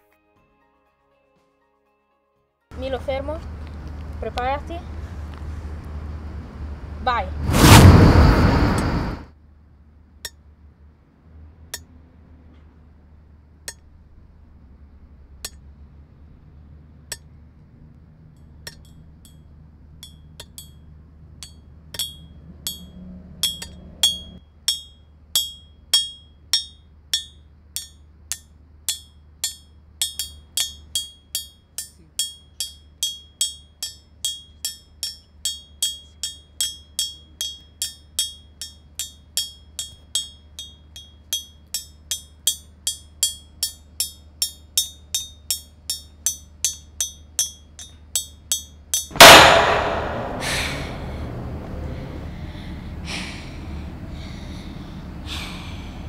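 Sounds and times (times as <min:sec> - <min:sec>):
low hum: 0:05.0 - 0:09.3, 0:49.2 - 0:56.0.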